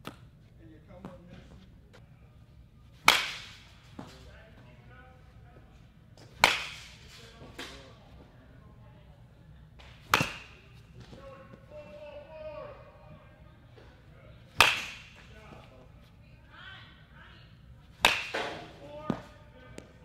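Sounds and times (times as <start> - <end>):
baseball bat hitting balls: 0.0 - 0.3, 3.0 - 4.3, 6.2 - 8.0, 9.8 - 12.3, 13.8 - 15.8, 17.8 - 20.0.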